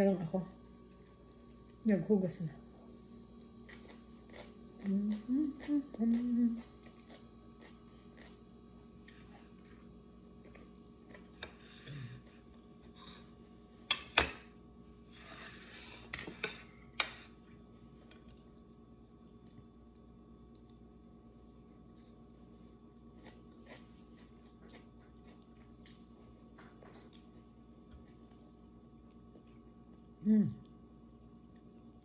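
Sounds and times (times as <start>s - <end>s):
person humming: 4.8s - 6.7s, 30.2s - 30.6s.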